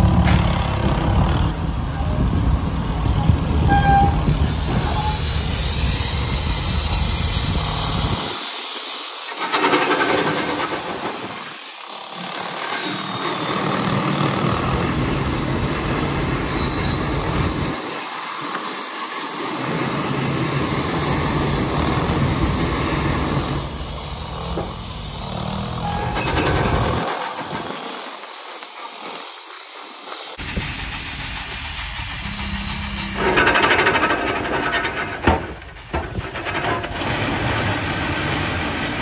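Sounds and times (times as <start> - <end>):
steam hissing: 0.0 - 39.0
mechanical clatter: 30.4 - 39.0.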